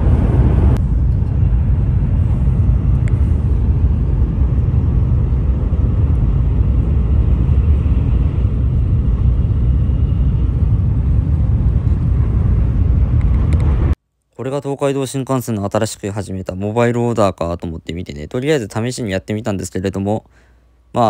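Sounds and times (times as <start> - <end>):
train running at speed: 0.0 - 14.0.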